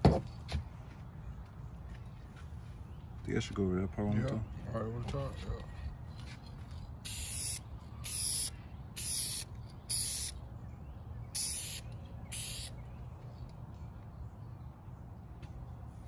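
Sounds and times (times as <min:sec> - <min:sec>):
aerosol spray can spraying: 0:07.1 - 0:10.3, 0:11.4 - 0:12.7.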